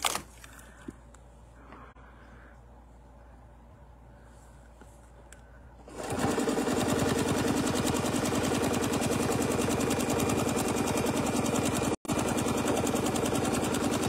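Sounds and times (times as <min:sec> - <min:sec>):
sewing machine stitching: 0:05.9 - 0:14.0.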